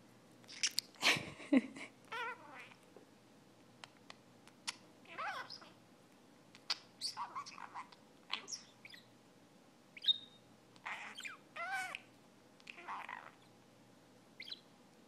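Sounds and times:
budgerigar chirping and warbling: 2.1s - 2.8s, 5.1s - 5.8s, 6.6s - 9.1s, 10.0s - 12.1s, 12.7s - 13.5s, 14.4s - 14.7s.

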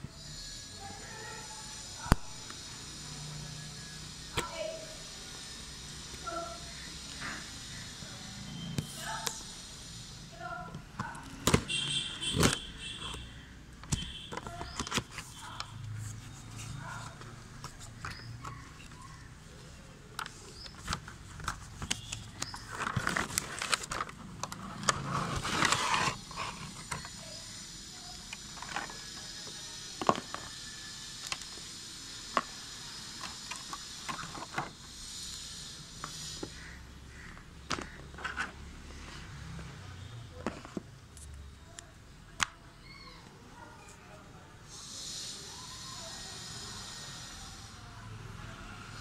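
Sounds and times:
plastic packaging crackling: 20.1s - 27.0s.

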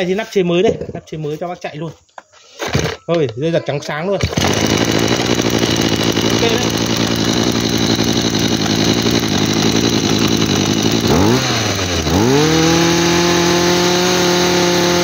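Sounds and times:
brush-cutter engine revving: 4.2s - 15.0s.

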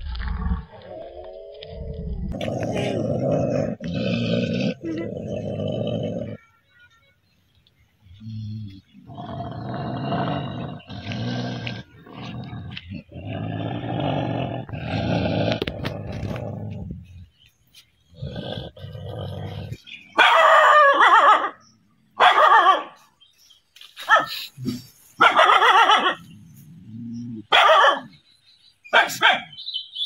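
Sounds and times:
dog growling: 0.9s - 6.4s, 8.2s - 17.2s, 18.1s - 19.8s
dog snarling barks: 27.4s - 28.1s.

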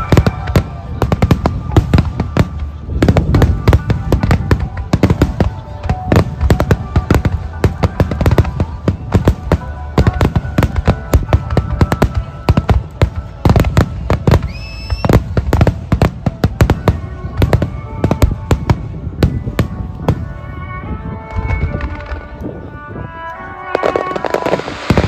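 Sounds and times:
firework whistle: 0.0s - 5.4s, 13.4s - 15.4s, 23.6s - 25.0s.

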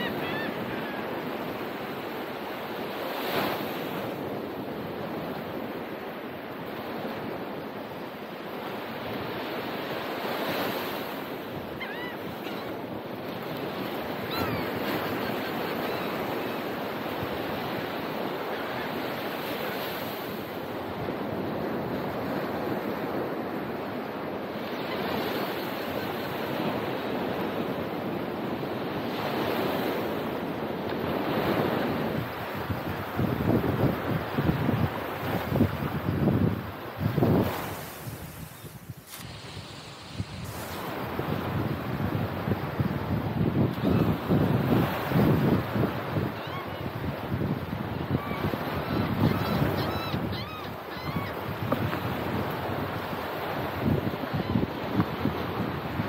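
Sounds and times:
ocean surf breaking: 0.0s - 56.0s
wind buffeting microphone: 31.0s - 56.0s.

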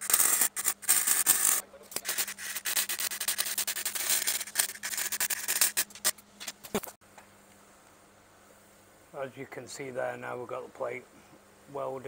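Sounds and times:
welding arc crackling: 0.0s - 6.9s.

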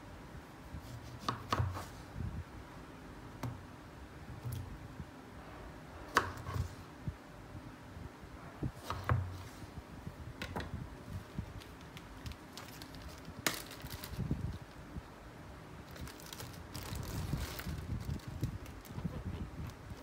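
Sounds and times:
plastic bag crinkling: 11.6s - 14.8s, 15.8s - 20.0s.

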